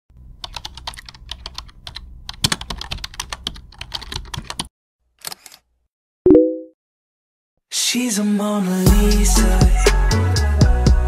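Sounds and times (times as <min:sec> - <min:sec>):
keyboard typing: 0:00.4 - 0:04.7.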